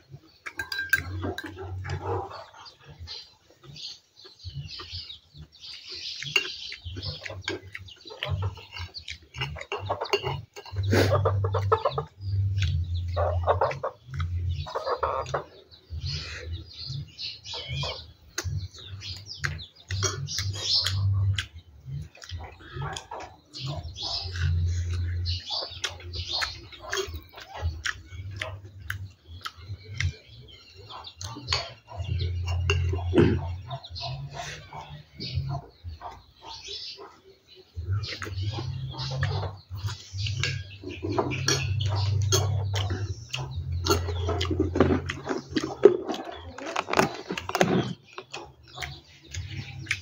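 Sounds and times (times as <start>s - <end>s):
chewing: 0.0s - 50.0s
chickens clucking: 0.0s - 50.0s.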